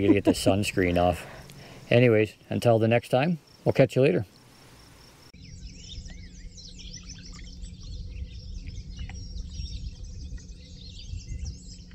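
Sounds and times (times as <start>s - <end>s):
low steady rumble: 0.0s - 2.9s, 5.4s - 11.9s
songbirds chirping and trilling: 0.0s - 11.9s.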